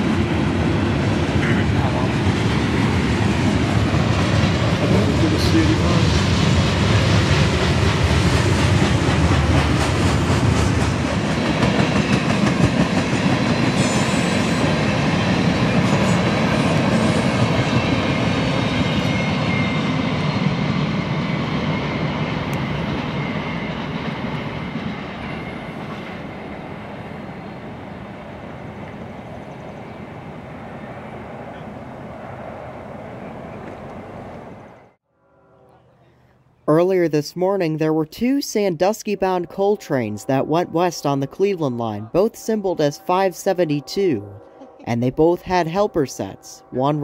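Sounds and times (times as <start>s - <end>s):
freight train wheels clattering: 2.4s - 19.1s.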